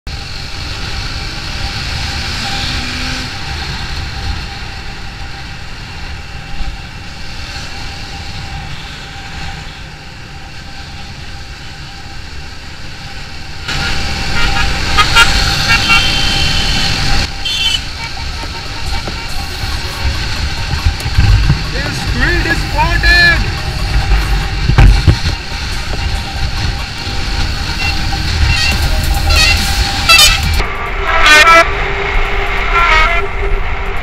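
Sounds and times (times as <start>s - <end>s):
wind rush on helmet: 0.1s - 31.0s
vehicle horn short toots: 15.7s - 19.2s, 27.8s - 30.6s.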